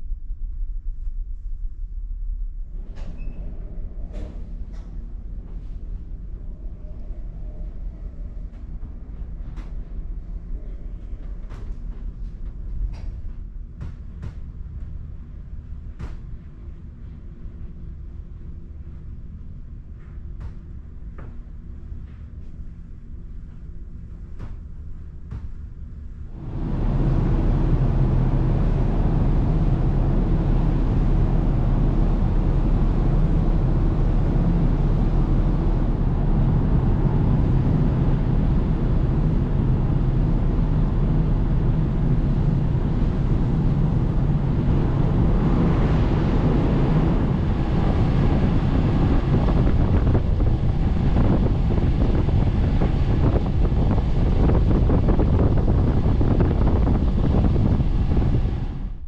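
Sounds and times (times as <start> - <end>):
low hum of ship engines: 0.0 - 59.0
wind buffeting microphone: 24.0 - 59.0
water rushing along hull: 26.4 - 58.9.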